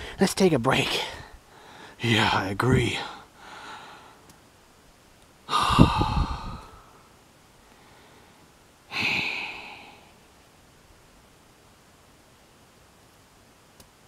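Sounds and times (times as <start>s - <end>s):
person sighing wearily: 5.5s - 7.0s, 8.9s - 10.1s.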